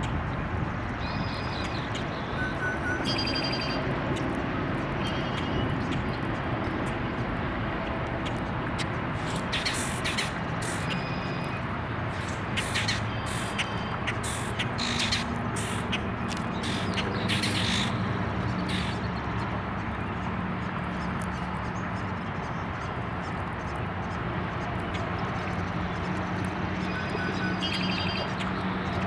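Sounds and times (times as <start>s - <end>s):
low hum of traffic: 0.0s - 29.0s
birds calling: 9.2s - 19.2s, 26.8s - 28.8s.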